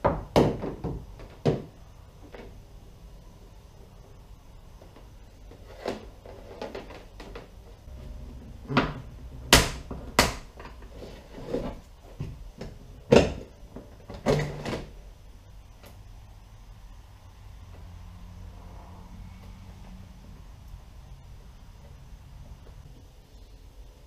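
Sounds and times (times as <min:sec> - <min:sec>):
hollow plastic knocks: 0:00.0 - 0:01.8.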